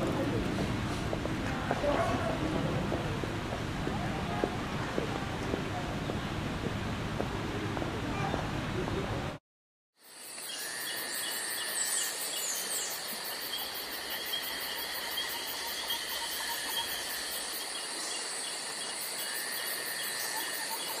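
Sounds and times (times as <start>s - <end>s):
crickets chirping: 10.0s - 21.0s
shrill insect calls: 10.0s - 21.0s.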